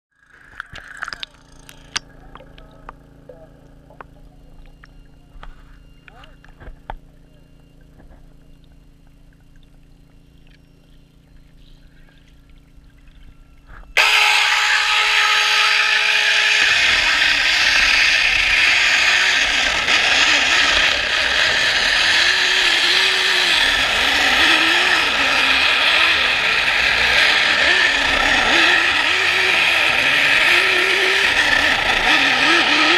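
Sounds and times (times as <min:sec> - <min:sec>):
low hum: 0:00.2 - 0:32.9
loud grinding machine: 0:14.0 - 0:32.9.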